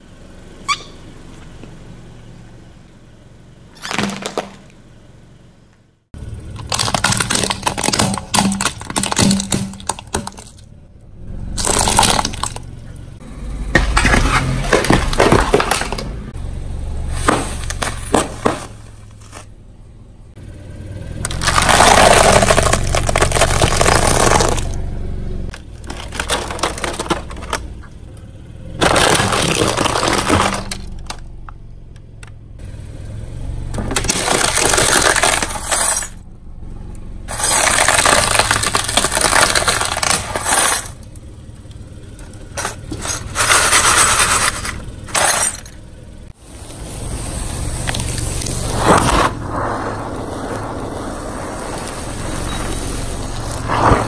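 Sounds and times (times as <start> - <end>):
low engine hum: 0.0 - 54.0
crisp snacks crunching: 6.6 - 10.6, 11.6 - 12.6, 21.3 - 24.8, 25.6 - 27.6, 28.8 - 31.1, 34.0 - 36.2, 37.3 - 40.9
plastic toys cracking: 6.6 - 10.6, 11.6 - 12.6, 21.3 - 24.8, 25.5 - 27.7, 28.8 - 31.2, 33.9 - 35.8, 37.3 - 41.0.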